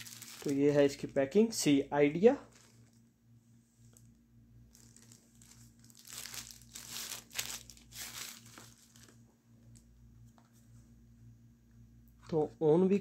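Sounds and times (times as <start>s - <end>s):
plastic packaging crinkling: 0.0s - 1.1s, 2.4s - 3.1s, 3.9s - 9.9s.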